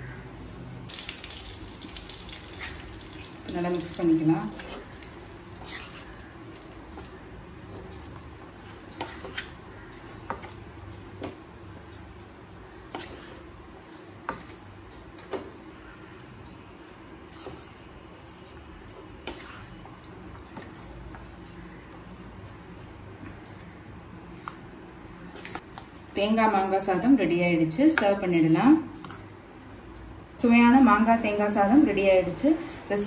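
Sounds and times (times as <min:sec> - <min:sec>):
spatula scraping a pan: 0:04.5 - 0:07.2, 0:08.5 - 0:10.6, 0:12.7 - 0:13.5, 0:15.2 - 0:23.8.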